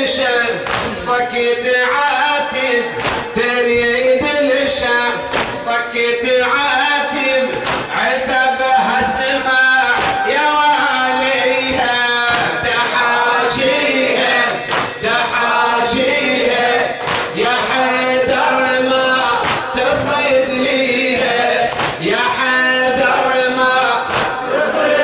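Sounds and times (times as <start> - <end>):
group of men's voices: 0.0 - 25.0
man chanting over microphone: 0.0 - 25.0
chest-slaps in unison: 0.6 - 1.0, 3.0 - 3.4, 5.3 - 5.6, 7.5 - 8.0, 10.0 - 10.2, 12.3 - 12.6, 14.7 - 15.0, 17.0 - 17.4, 19.4 - 19.7, 21.7 - 22.0, 24.1 - 24.4.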